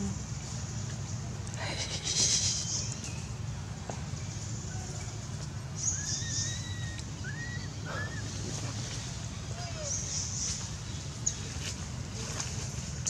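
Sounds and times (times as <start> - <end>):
baby monkey crying coos: 5.9 - 8.4.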